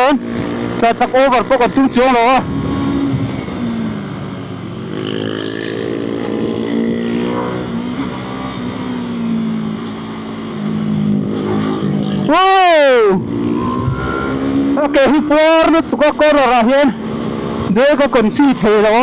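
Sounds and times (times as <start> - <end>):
motorcycle engine running: 0.0 - 16.3
person shouting: 12.3 - 13.2.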